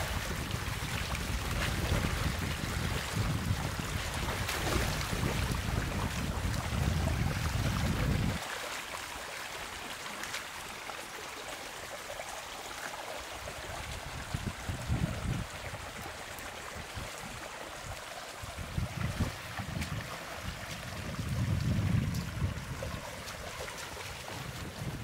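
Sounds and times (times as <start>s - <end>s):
wind buffeting microphone: 0.0s - 8.4s, 13.5s - 25.0s
water flowing: 0.0s - 25.0s.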